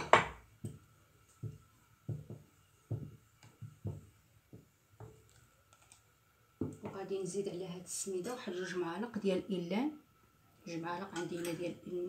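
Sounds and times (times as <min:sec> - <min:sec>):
spoon stirring thick porridge: 0:00.0 - 0:06.9.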